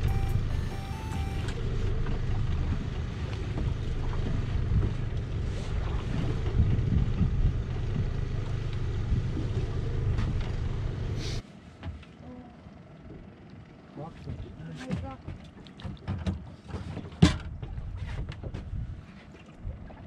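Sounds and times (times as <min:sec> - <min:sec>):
wind buffeting microphone: 0:02.4 - 0:11.0.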